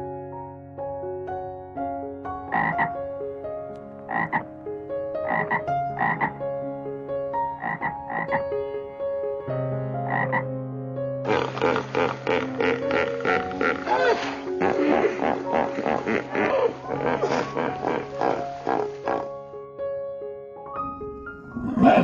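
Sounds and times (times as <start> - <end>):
background music tones: 0.0 - 22.0
frog croaking: 2.5 - 3.0, 4.0 - 4.5, 5.2 - 6.4, 7.6 - 8.4, 10.1 - 10.4, 11.3 - 19.4
hippopotamus grunting: 11.3 - 19.5, 21.6 - 22.0.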